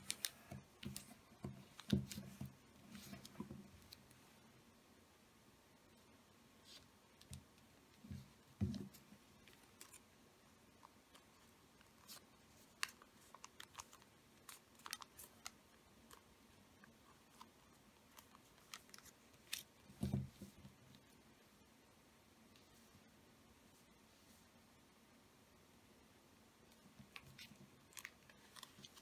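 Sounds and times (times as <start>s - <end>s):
paper crackling and clicking: 0.0s - 2.3s, 10.8s - 16.3s, 18.1s - 19.7s, 27.1s - 29.0s.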